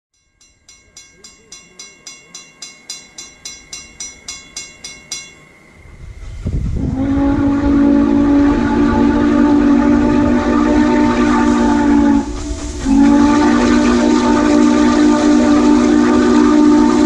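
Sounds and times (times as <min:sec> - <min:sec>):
railroad crossing bell ringing: 0:00.1 - 0:05.9
train rumble: 0:00.4 - 0:17.0
train horn chord: 0:06.7 - 0:17.0.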